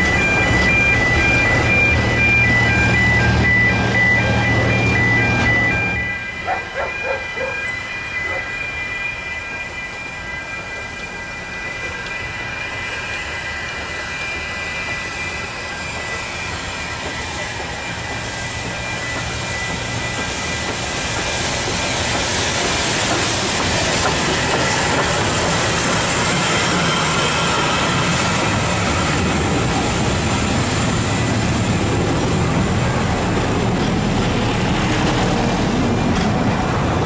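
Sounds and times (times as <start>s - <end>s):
level crossing alarm tones: 0.0s - 8.8s
steam locomotive running: 0.0s - 37.0s
steam hissing: 6.4s - 36.0s.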